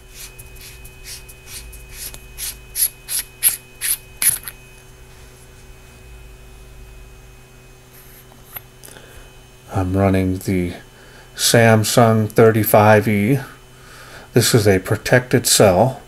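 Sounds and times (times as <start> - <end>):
flashlight cap threads clicking: 3.1 - 4.6.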